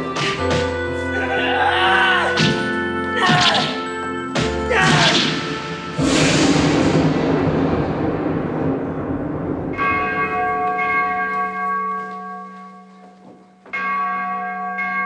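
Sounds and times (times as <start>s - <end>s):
bell ringing: 2.2s - 6.0s, 9.8s - 15.0s.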